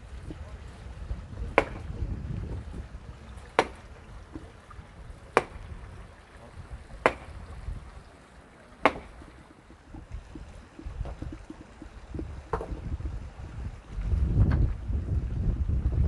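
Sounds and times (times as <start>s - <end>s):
wind on microphone: 0.0s - 8.1s, 9.0s - 16.0s
sharp knocks: 1.6s - 1.9s, 3.6s - 4.5s, 5.3s - 5.6s, 7.0s - 7.3s, 8.8s - 9.3s.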